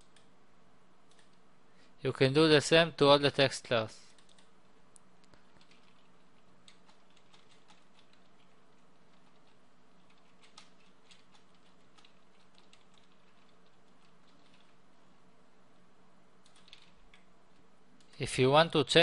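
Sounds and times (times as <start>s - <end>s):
keyboard typing: 0.0s - 0.3s, 1.1s - 1.4s, 4.1s - 4.5s, 5.4s - 14.8s, 16.4s - 18.2s
low steady hum: 0.0s - 19.0s.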